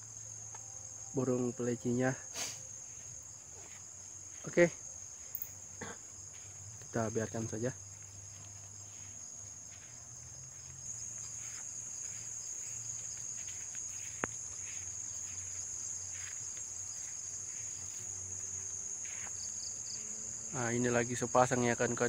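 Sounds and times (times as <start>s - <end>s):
crickets chirring: 0.0s - 22.0s.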